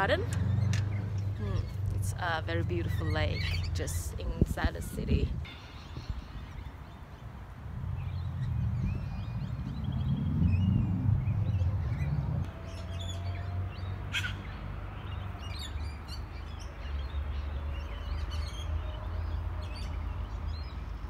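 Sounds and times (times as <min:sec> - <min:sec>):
wind rumble on microphone: 0:00.0 - 0:14.0
birds chirping and calling: 0:00.0 - 0:20.8.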